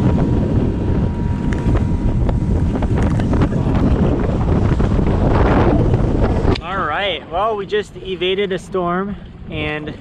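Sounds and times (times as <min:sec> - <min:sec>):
boat engine running: 0:00.0 - 0:10.0
wind rumble on microphone: 0:00.0 - 0:10.0.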